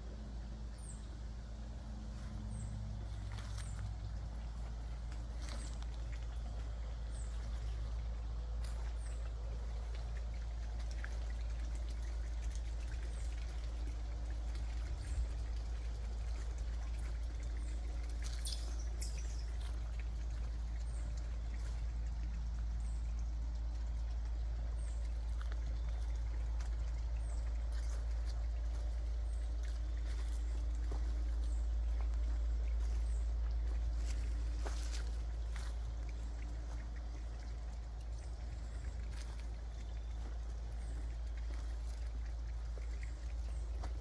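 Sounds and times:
low rumble: 0.0s - 44.0s
soft steps on mulch: 2.1s - 10.1s, 27.6s - 37.2s.

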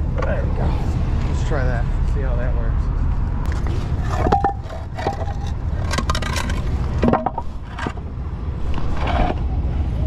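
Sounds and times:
steady low rumble: 0.0s - 10.0s
wood scraping and knocking on asphalt: 3.4s - 9.7s.

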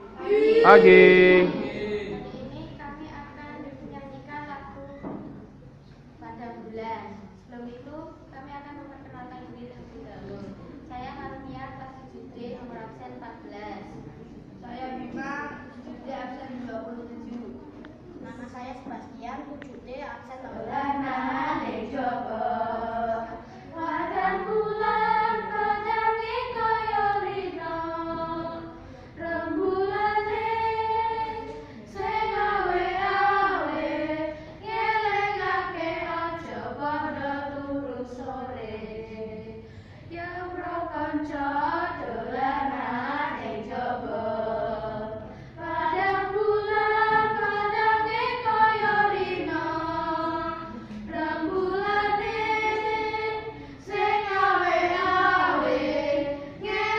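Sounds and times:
children singing in unison: 0.0s - 2.2s, 20.8s - 39.6s, 40.4s - 56.9s.

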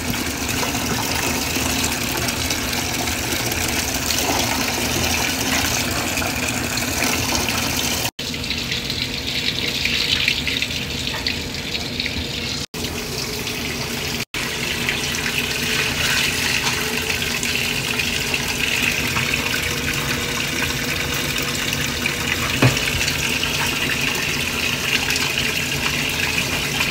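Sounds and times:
water pouring into washing machine: 0.0s - 26.9s.

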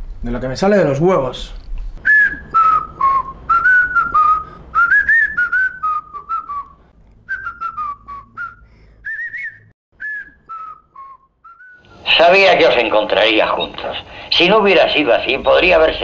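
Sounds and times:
person whistling a tune: 2.0s - 12.0s.

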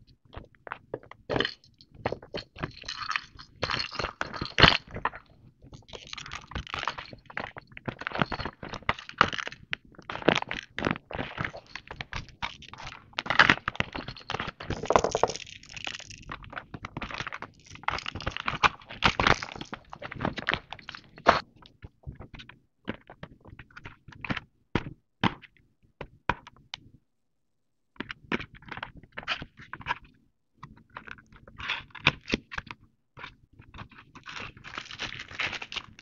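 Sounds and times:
plastic toys knocking together: 13.2s - 16.3s.

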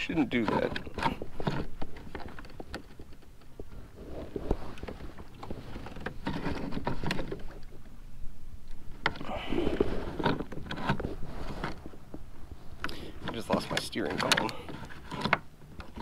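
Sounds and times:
rudder lever clicks and knocks: 13.3s - 16.0s.

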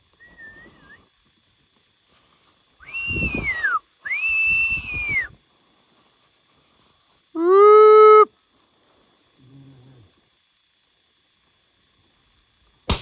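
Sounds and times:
person whistling: 2.8s - 5.3s.

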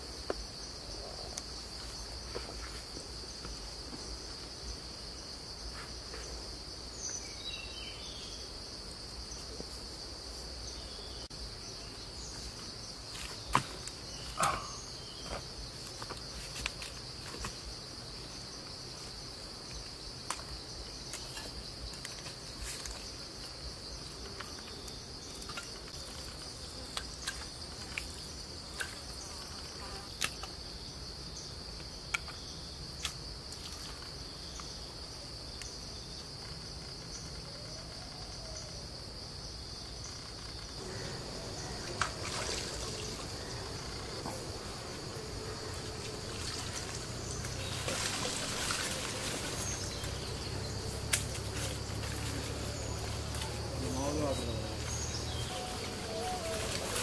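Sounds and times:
high-pitched insect drone: 40.8s - 57.0s.

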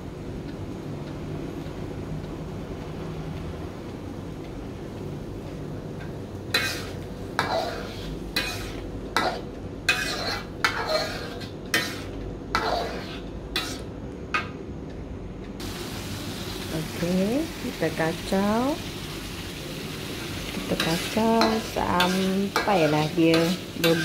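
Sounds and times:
metal ladle scraping a wok: 6.6s - 13.9s, 20.6s - 24.0s.

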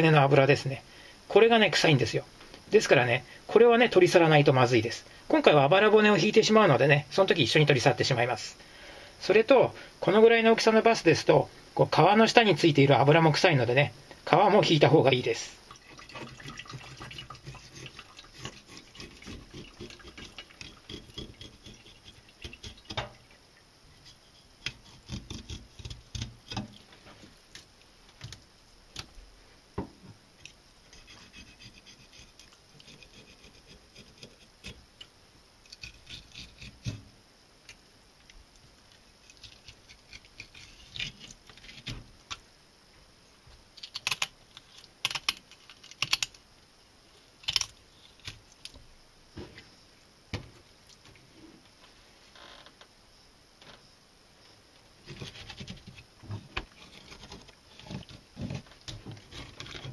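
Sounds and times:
knife scraping through fish: 16.6s - 22.7s.

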